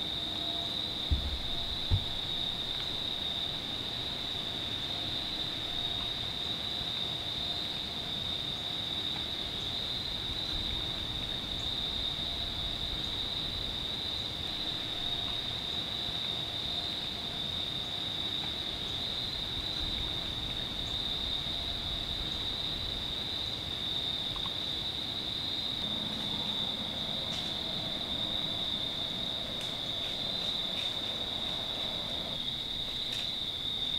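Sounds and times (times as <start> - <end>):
crickets chirping: 0.0 - 33.9.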